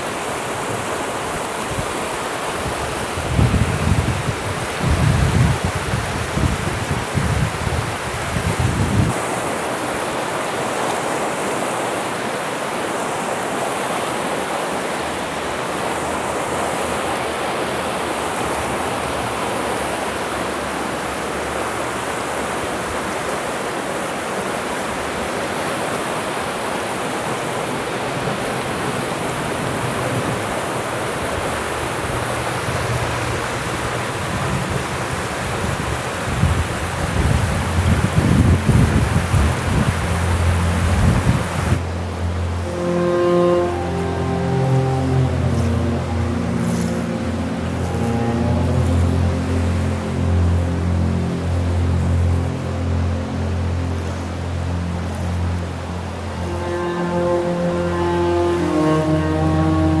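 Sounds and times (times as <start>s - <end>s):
whitewater rushing over rocks: 0.0s - 60.0s
wind buffeting microphone: 2.8s - 9.2s, 33.8s - 41.9s.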